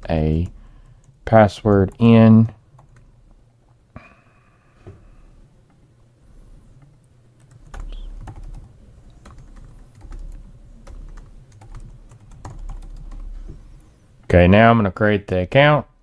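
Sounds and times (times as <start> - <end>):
computer keyboard typing: 2.8 - 3.1, 6.8 - 13.4.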